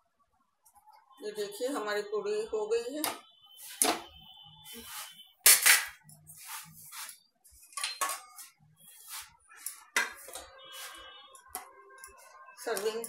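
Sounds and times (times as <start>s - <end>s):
metal kitchenware clinking: 7.7s - 8.5s.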